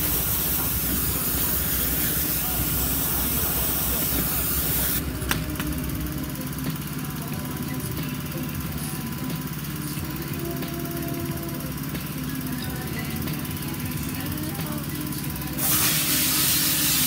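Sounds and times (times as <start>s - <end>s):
pressure washer water hissing: 0.0s - 5.2s, 15.4s - 17.0s
washer engine running: 0.0s - 17.0s.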